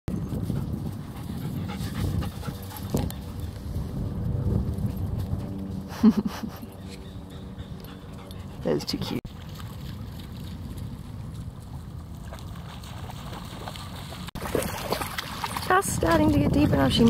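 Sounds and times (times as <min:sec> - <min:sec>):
dogs panting: 0:00.2 - 0:03.7, 0:06.3 - 0:09.2.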